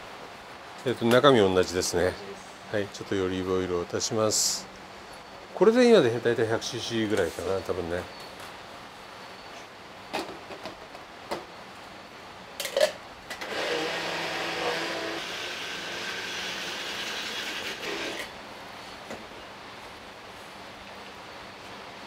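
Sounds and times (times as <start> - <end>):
electric mini chopper running: 13.4 - 18.3.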